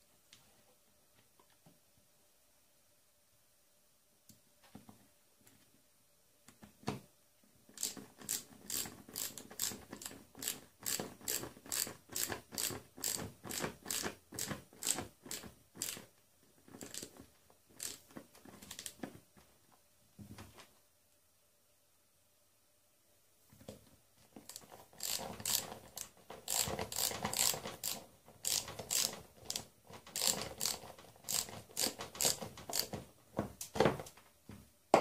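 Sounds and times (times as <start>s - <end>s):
ratcheting screwdriver clicking: 7.8s - 13.2s, 13.9s - 16.0s, 16.8s - 17.1s, 17.8s - 18.0s, 24.5s - 33.0s.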